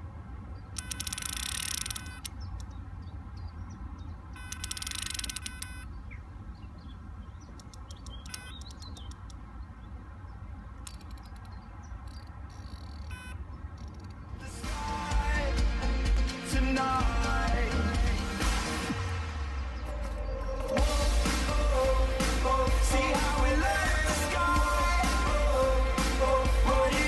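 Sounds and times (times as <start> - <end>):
fishing reel ticking: 0.8 - 2.3, 4.4 - 5.8, 7.6 - 9.4, 10.8 - 14.2
bite alarm beeping: 0.8 - 2.4, 4.3 - 6.0, 7.6 - 9.2, 12.1 - 14.1.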